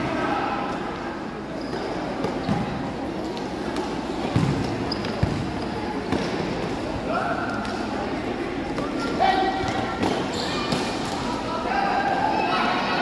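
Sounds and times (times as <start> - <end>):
murmur of voices: 0.0 - 13.0
soccer ball thudding on court: 4.3 - 5.5.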